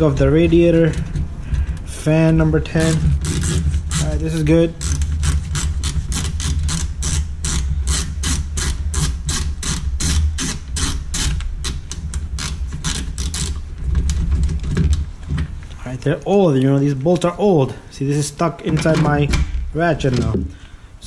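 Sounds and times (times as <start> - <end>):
steady low hum: 0.0 - 21.0
hand ratchet clicking: 2.7 - 13.7.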